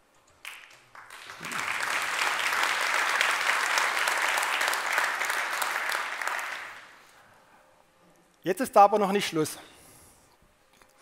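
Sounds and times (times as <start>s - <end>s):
audience applauding: 0.4s - 7.0s.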